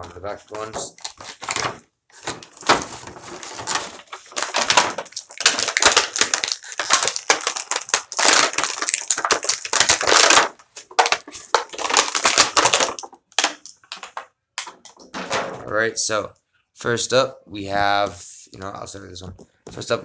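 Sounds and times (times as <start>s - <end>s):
plastic packaging crinkling: 0.4s - 15.0s.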